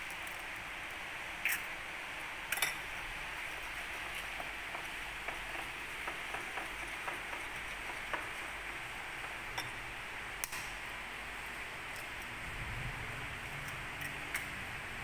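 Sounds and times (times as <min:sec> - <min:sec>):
steady background hiss: 0:00.0 - 0:15.0
metal spoon clinking ceramic bowl: 0:02.5 - 0:02.8.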